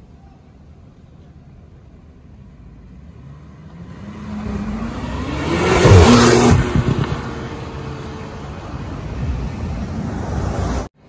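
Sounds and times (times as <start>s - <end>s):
car accelerating past: 3.1s - 10.9s.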